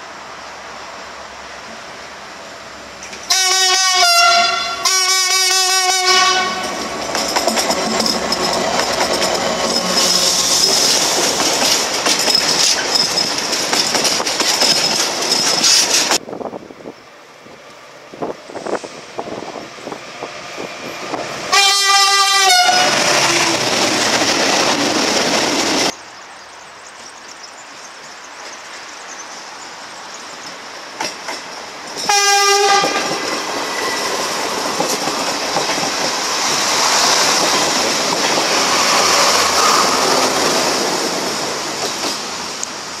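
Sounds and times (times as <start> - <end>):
train wheels clicking over rail joints: 3.0 - 3.3, 5.9 - 16.2, 22.3 - 26.0, 30.3 - 42.8
train horn blasts: 3.3 - 6.8, 9.8 - 10.7, 21.5 - 23.6, 32.1 - 33.2.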